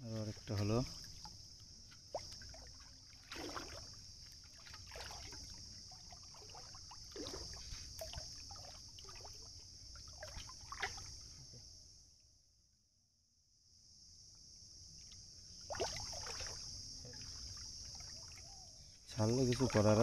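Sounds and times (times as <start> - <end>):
water splashing: 0.2 - 11.3, 15.6 - 18.7.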